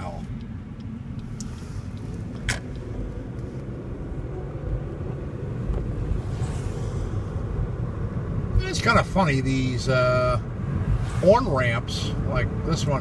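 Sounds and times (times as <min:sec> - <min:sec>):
car engine and tyre rumble: 0:00.0 - 0:13.0
brief swish: 0:06.1 - 0:07.3.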